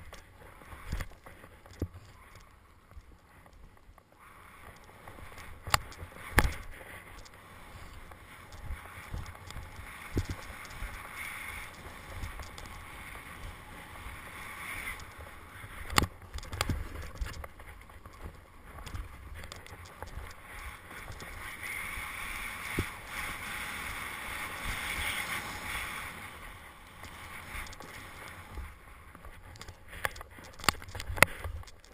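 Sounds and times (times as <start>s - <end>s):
snowboard swishing through snow: 6.1s - 15.7s, 20.4s - 29.0s.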